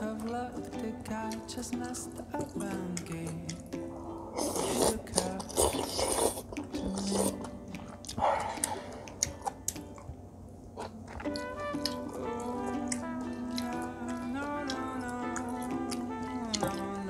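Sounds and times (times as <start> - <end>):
faint background music: 0.0 - 17.0
wet mouth clicks: 1.3 - 10.2, 10.8 - 14.8
person chewing crunchy food: 4.3 - 10.2, 10.8 - 16.9.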